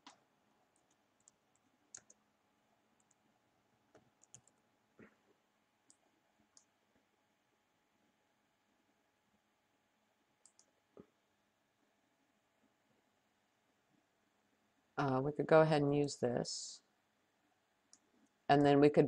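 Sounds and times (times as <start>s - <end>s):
computer keyboard clicks: 0.8s - 2.2s, 3.9s - 4.6s, 10.4s - 10.7s
mouse clicks: 0.8s - 2.2s, 3.9s - 4.6s, 10.4s - 11.1s.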